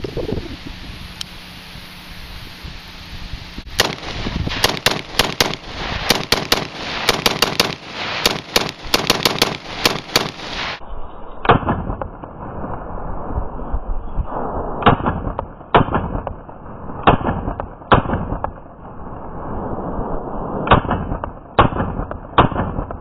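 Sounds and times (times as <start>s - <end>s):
rifle gunshots: 3.8s - 10.8s, 14.8s - 16.4s, 17.0s - 18.5s, 20.7s - 23.0s.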